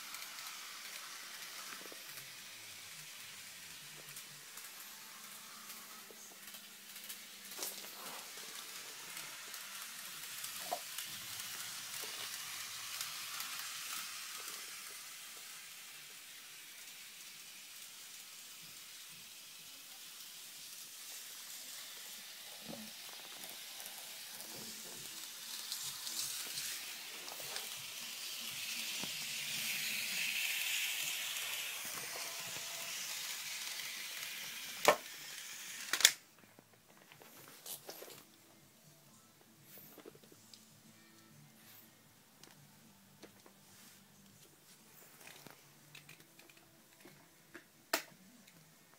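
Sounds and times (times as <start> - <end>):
model train motor whirring: 0.0 - 36.2.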